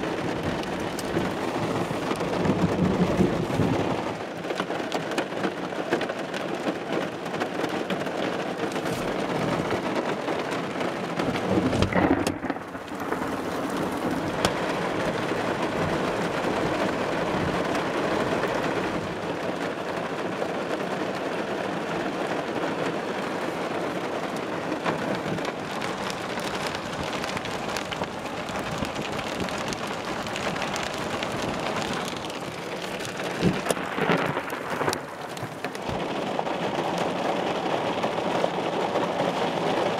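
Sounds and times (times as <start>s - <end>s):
low rumble of thunder: 0.0s - 4.3s, 11.2s - 19.3s, 24.2s - 39.6s
heavy rain on car roof: 0.0s - 39.9s.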